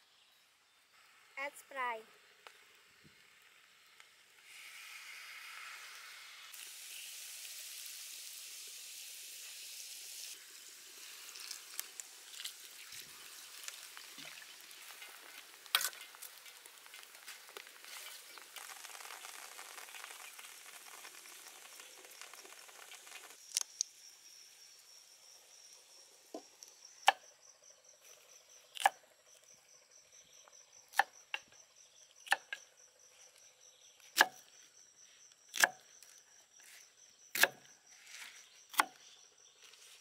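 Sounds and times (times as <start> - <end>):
soda fizzing and sizzling in wok: 2.2 - 26.9.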